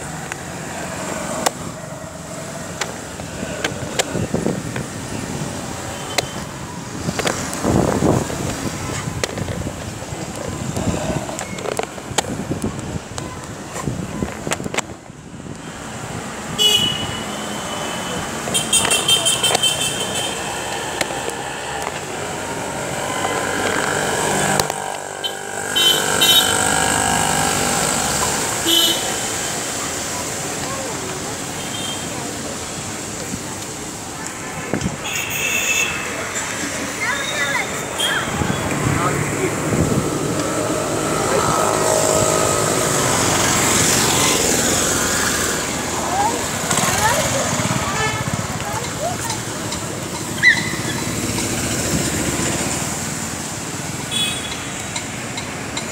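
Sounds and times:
traffic on a wet road: 0.0 - 55.9
vehicle engine passing: 20.0 - 31.6, 36.2 - 53.8.

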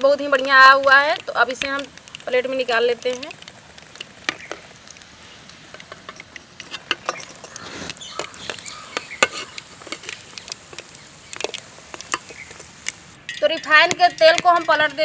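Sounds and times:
frying in hot oil: 0.0 - 15.0
metal ladle scraping: 3.9 - 13.1.

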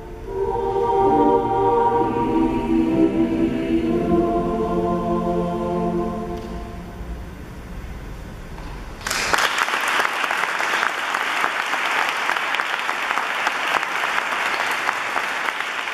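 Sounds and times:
audience applause: 9.0 - 15.9.

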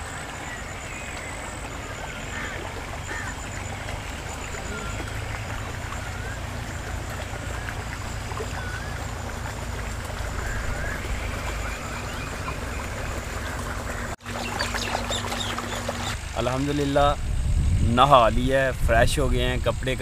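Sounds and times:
wind on microphone: 16.1 - 20.0.

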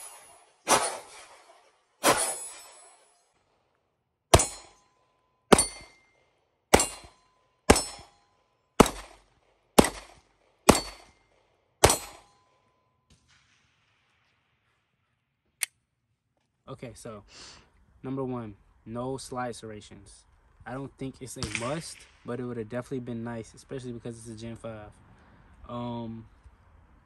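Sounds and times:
pistol shots: 0.0 - 2.8, 4.3 - 4.8, 5.5 - 6.0, 6.7 - 8.2, 8.8 - 11.2, 11.8 - 12.3, 21.4 - 22.1
metallic ring of steel targets: 0.0 - 3.4, 4.3 - 12.9.

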